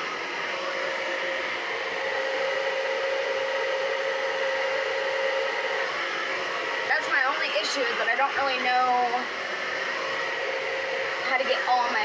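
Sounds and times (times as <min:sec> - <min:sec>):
hair dryer blowing with whine: 0:00.0 - 0:12.0.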